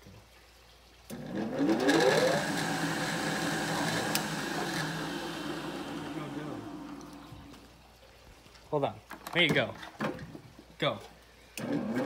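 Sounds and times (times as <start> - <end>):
drill press motor whine: 1.1 - 7.3.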